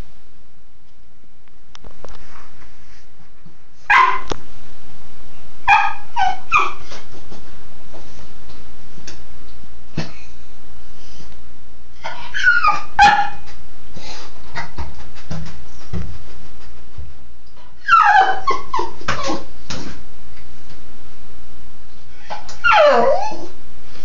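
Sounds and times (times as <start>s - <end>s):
dog yipping and whimpering: 5.7s - 6.8s, 12.0s - 13.4s, 17.8s - 19.4s, 22.3s - 23.5s.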